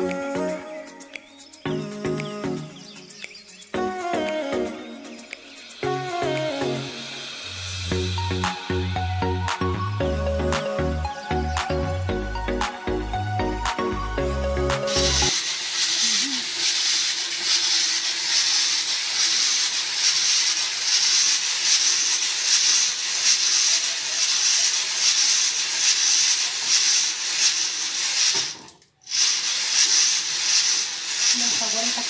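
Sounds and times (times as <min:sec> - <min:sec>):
coffee beans tumbling in drum roaster: 0:15.3 - 0:32.0.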